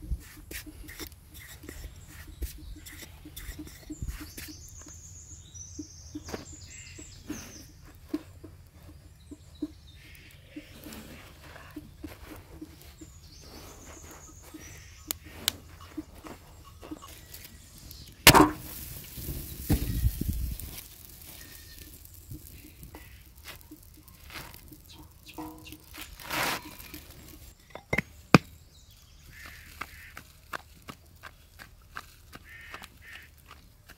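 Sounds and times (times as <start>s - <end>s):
wood fire crackling: 15.0s - 28.5s
dough hissing on griddle: 18.5s - 24.6s.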